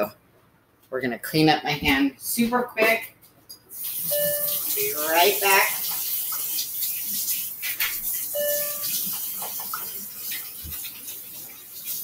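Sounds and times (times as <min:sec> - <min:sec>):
tap water running: 0:03.7 - 0:12.0.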